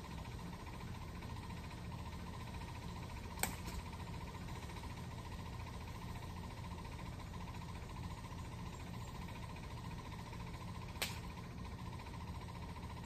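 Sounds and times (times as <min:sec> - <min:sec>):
sharp click: 0:11.0 - 0:11.3.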